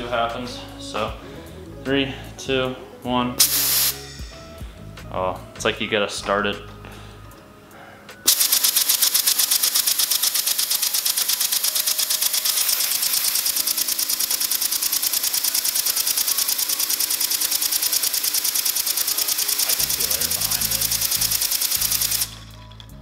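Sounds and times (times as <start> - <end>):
compressed air hissing: 3.4 - 4.9, 7.1 - 22.5.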